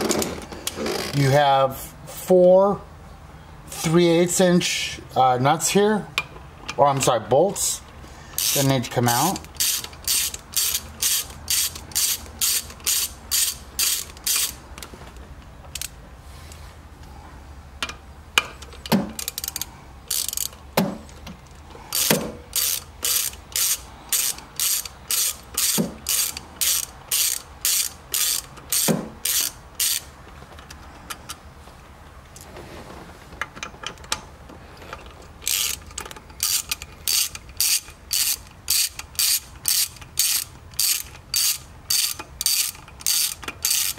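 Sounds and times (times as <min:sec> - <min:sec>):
ratchet wrench clicking: 0:08.4 - 0:14.6, 0:19.1 - 0:20.6, 0:21.9 - 0:30.1, 0:35.4 - 0:43.9
sharp knocks: 0:28.8 - 0:29.2.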